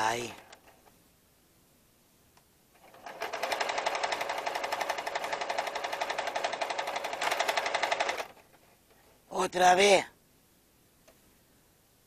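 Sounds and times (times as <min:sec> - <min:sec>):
sewing machine stitching: 0:02.8 - 0:08.5.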